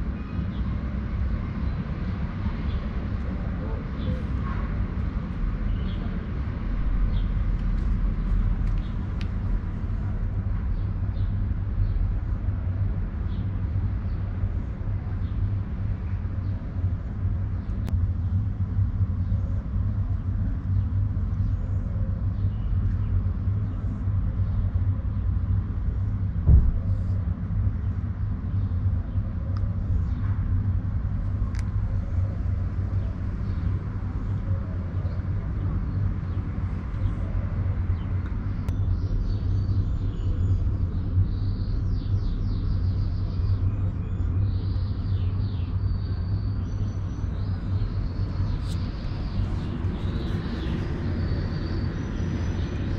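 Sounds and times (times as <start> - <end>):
low outdoor rumble: 0.0 - 52.9
single thump: 26.4 - 26.8.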